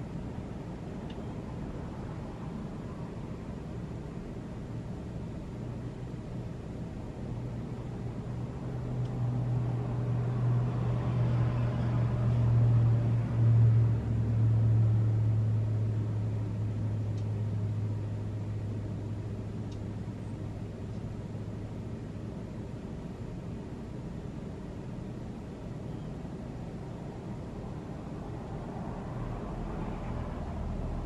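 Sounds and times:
vehicle engine passing by: 9.2 - 16.6, 28.2 - 31.0.

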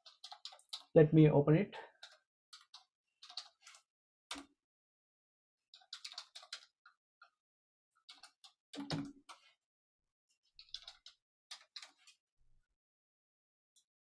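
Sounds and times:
computer keyboard keys clicking: 0.0 - 0.9, 2.0 - 4.5, 5.8 - 6.7, 10.6 - 12.1.

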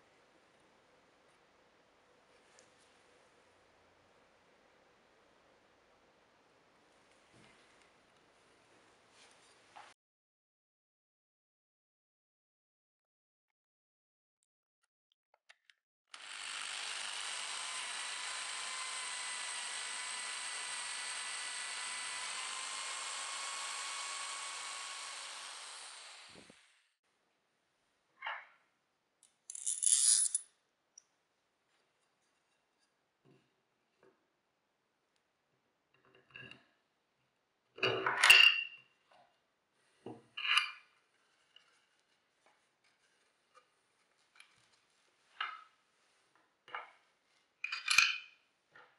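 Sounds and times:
electric drill boring timber: 16.1 - 26.8
metal washer and bolt clinking: 47.6 - 48.3.

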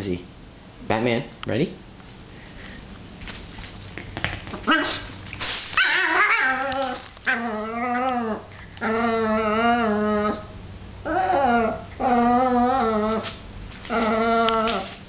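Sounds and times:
dog whining and yowling: 5.8 - 15.0.

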